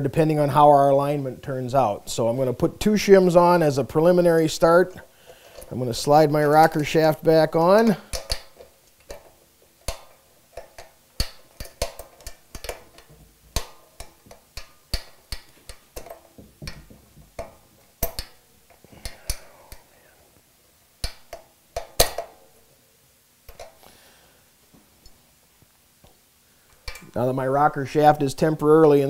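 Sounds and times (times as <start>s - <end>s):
sharp metal clicks: 6.7s - 19.9s, 21.0s - 22.4s, 26.7s - 27.2s.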